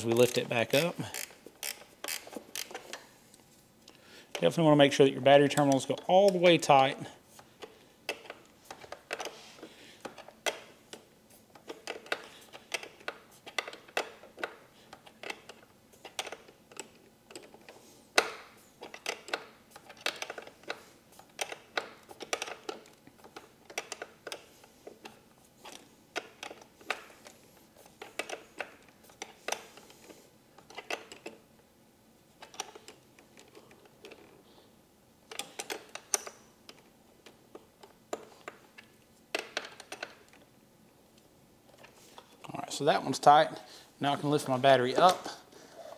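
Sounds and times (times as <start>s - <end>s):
wrench clicking on metal bolt: 0.2s - 3.0s.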